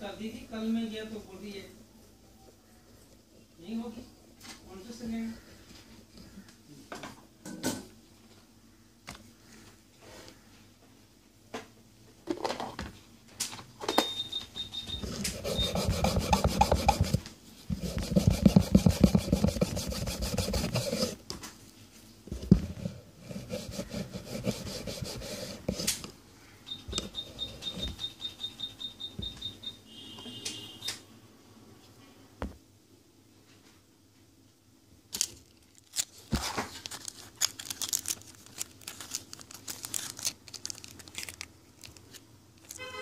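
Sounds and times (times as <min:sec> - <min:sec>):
cloth rubbing a circuit board: 0:15.0 - 0:21.2, 0:22.6 - 0:26.0.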